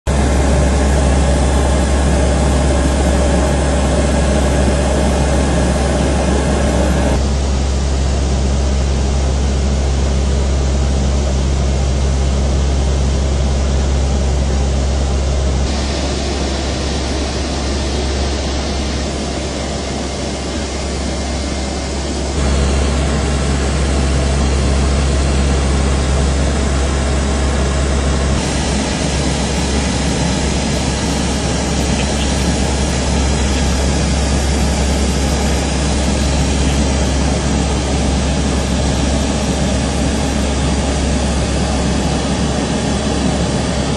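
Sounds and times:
low engine drone: 0.1s - 43.9s
noisy hiss: 15.7s - 25.6s, 28.4s - 43.6s.

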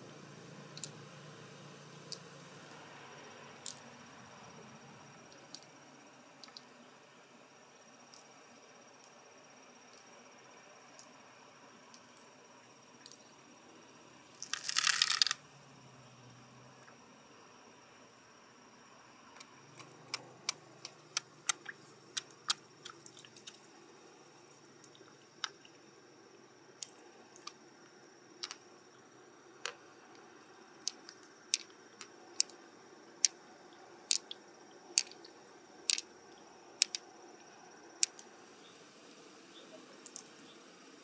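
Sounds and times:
faint high whine: 0.0s - 41.0s
shell and tool clicking: 35.0s - 35.2s, 36.8s - 37.0s.

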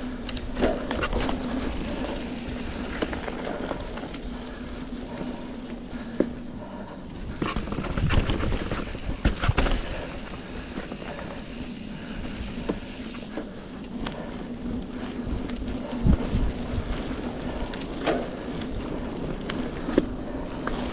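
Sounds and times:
bike tyres rolling on dirt: 0.0s - 20.9s
bike frame knocks and rattles: 7.4s - 10.3s.

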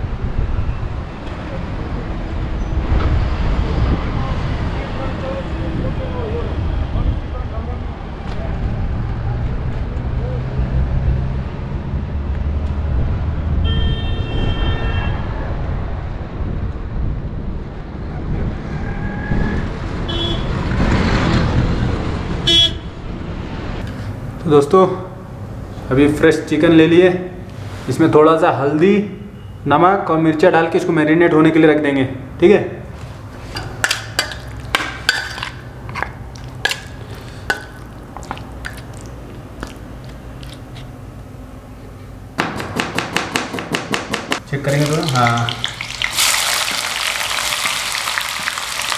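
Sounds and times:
road traffic passing: 0.0s - 48.9s
car horn toot: 13.6s - 15.2s, 20.1s - 20.6s, 22.4s - 23.0s
faint beep: 29.3s - 29.6s
spoon clinking against steel plate: 33.6s - 38.8s.

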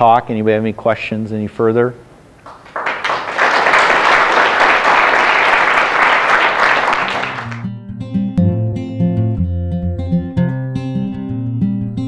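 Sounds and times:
audience clapping: 2.4s - 7.7s
strummed acoustic guitar music: 7.6s - 12.0s.

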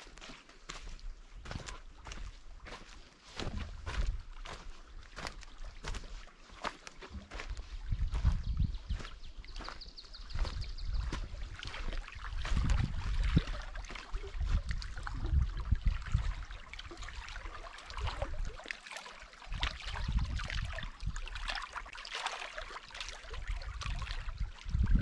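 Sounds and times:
waves lapping against rocks: 0.0s - 8.3s, 9.0s - 25.0s
wind buffeting microphone: 3.4s - 4.6s, 7.3s - 16.6s, 19.5s - 21.4s, 23.5s - 25.0s.

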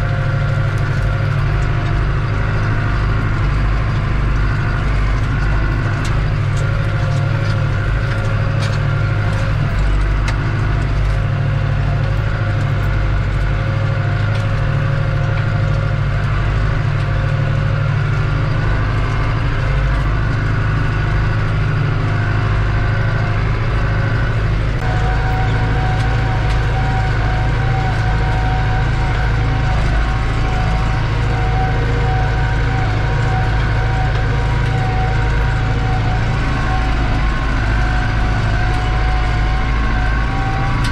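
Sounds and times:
tractor diesel engine under load: 0.0s - 40.9s
turbo whine: 0.0s - 40.9s.

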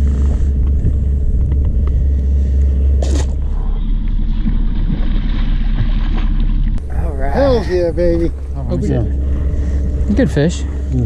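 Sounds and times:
wind buffeting microphone: 0.0s - 6.1s, 6.8s - 11.0s.

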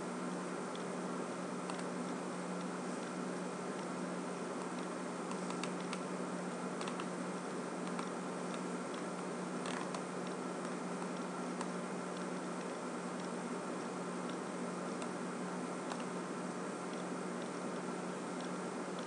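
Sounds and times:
computer mouse clicks: 1.7s - 1.9s, 4.7s - 6.0s, 6.8s - 7.1s, 7.8s - 13.3s, 15.8s - 16.2s.

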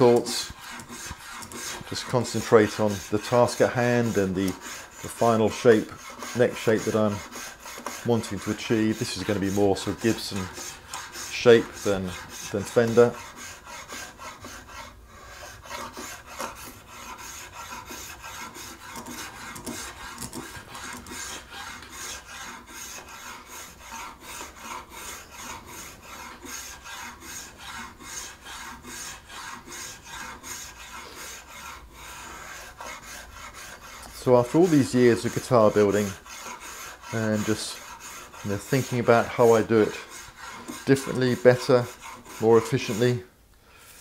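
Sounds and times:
spokeshave slicing wood: 0.0s - 43.2s.

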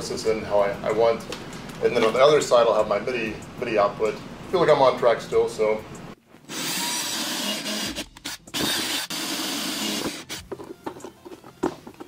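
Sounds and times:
cordless drill boring plastic: 6.5s - 10.4s.

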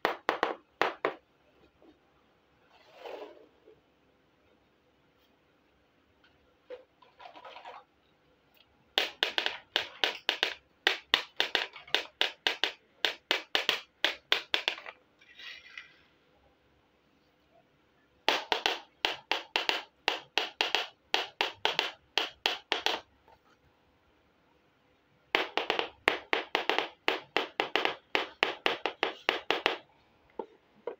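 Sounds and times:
soft scraping: 2.6s - 3.8s.

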